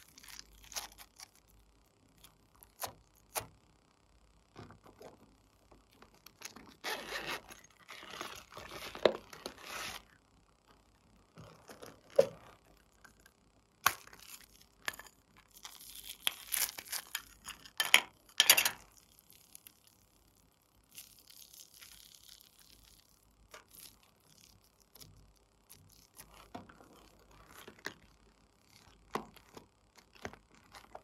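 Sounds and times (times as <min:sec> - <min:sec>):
slime crackling and tearing: 0:00.0 - 0:03.5, 0:13.8 - 0:17.8, 0:18.8 - 0:31.0.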